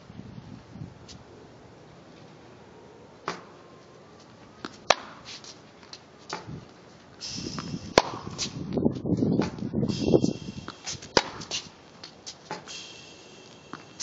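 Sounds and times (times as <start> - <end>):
racquet hitting tennis ball: 3.2 - 3.5, 4.6 - 5.6, 7.4 - 8.7, 9.4 - 12.7, 13.4 - 14.0
hissing noise: 7.2 - 8.8, 9.9 - 14.0.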